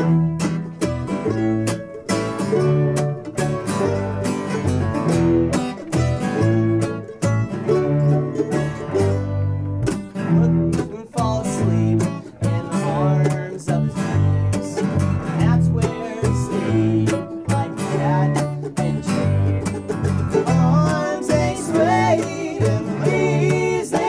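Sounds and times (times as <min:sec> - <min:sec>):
fiddle bowing: 0:00.0 - 0:13.5, 0:14.1 - 0:24.0
acoustic guitar strumming: 0:00.0 - 0:24.0
mandolin strumming: 0:00.0 - 0:24.0
cello bowing: 0:14.1 - 0:24.0.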